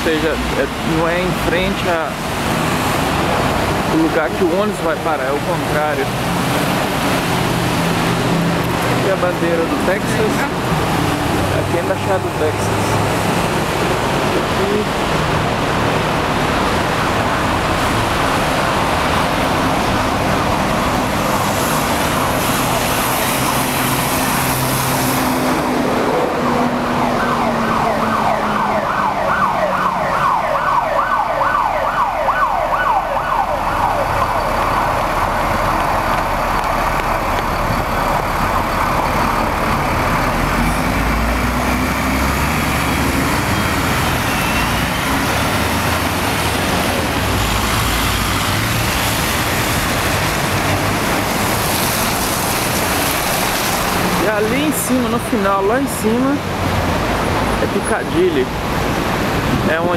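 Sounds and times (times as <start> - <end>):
traffic on wet road: 0.0 - 59.9
siren yelping: 26.1 - 35.9.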